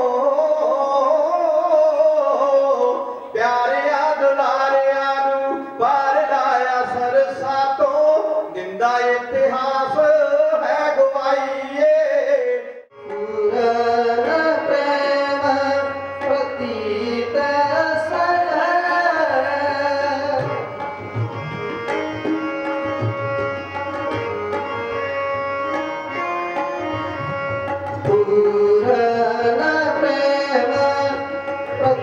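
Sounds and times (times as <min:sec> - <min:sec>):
harmonium: 0:00.0 - 0:32.0
tabla playing: 0:00.0 - 0:32.0
men singing: 0:13.1 - 0:20.6, 0:28.0 - 0:32.0.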